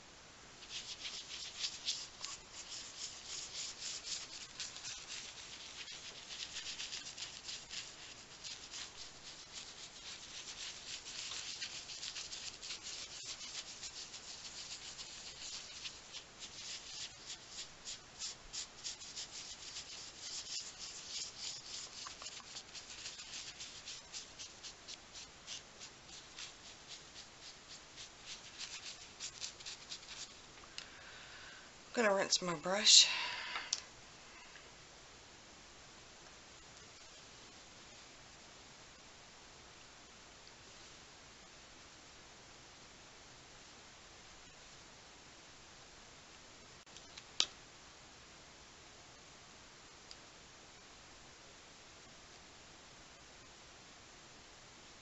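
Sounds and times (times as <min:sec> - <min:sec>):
scratchy brush strokes on paper: 0:00.6 - 0:30.5.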